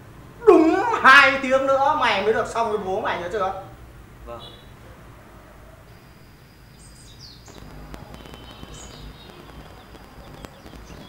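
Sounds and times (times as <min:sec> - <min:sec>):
distant traffic rumble: 0:00.0 - 0:11.0
bird chirps: 0:05.9 - 0:11.0
faint clicks: 0:07.5 - 0:11.0.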